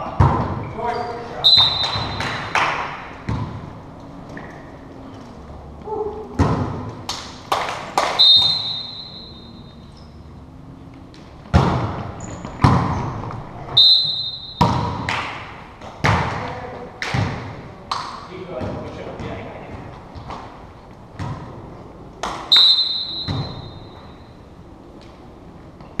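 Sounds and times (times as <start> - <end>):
referee whistle: 1.4 - 2.3, 8.2 - 9.8, 13.8 - 14.8, 22.5 - 24.1
hands hitting volleyball: 14.6 - 20.5.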